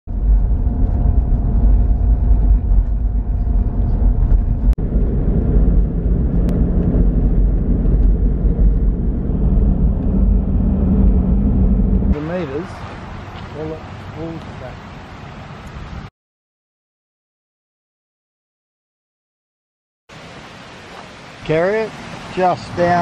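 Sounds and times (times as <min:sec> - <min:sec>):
car engine and tyre rumble: 0:00.1 - 0:16.1.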